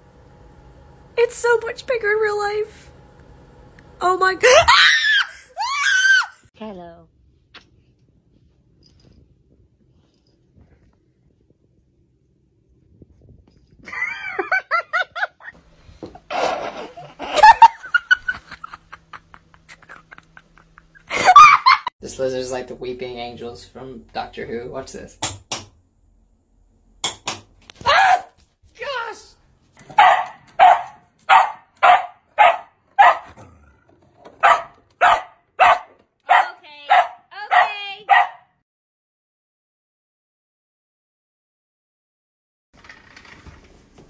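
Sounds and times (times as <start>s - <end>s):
dog barking: 27.9s - 28.4s, 29.9s - 33.4s, 34.4s - 38.5s.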